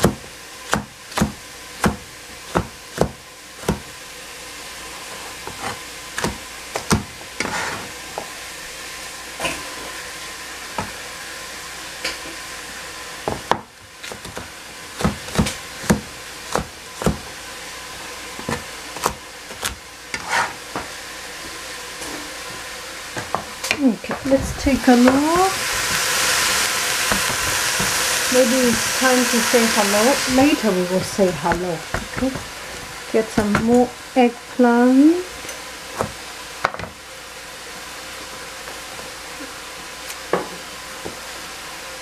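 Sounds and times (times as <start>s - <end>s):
knife chopping on cutting board: 0.0s - 3.9s, 5.4s - 7.8s, 13.3s - 17.3s, 18.4s - 20.6s, 27.1s - 28.0s, 31.4s - 32.5s
vegetables sizzling in a pan: 0.0s - 42.0s.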